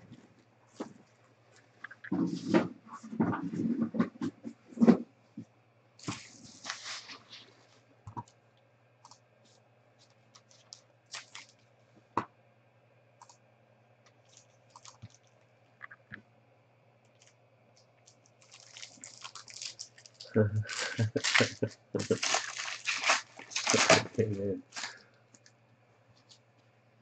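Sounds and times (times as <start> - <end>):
foil packs crinkling: 6.0 - 7.4, 10.4 - 11.6, 18.0 - 25.1.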